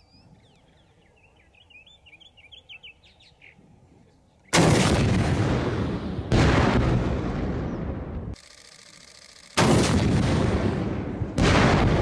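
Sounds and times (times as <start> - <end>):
faint birds chirping: 0.0 - 4.6
heavy blast with rumble: 4.6 - 8.3, 9.6 - 12.0.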